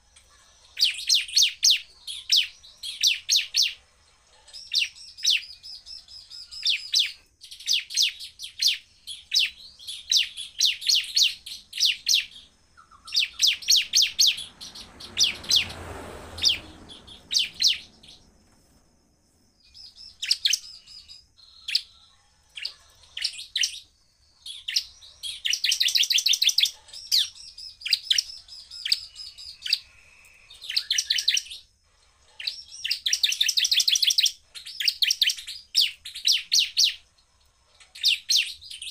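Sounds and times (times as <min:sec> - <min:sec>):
bird singing sharp high chirps: 0:04.6 - 0:18.8, 0:19.6 - 0:22.0, 0:22.6 - 0:31.7
low rushing noise: 0:13.6 - 0:19.6.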